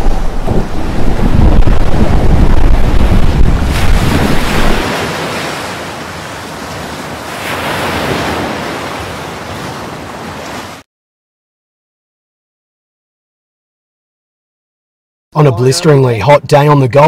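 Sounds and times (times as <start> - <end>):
wind buffeting microphone: 0.0 - 10.4
sea water rushing over deck: 0.0 - 10.8.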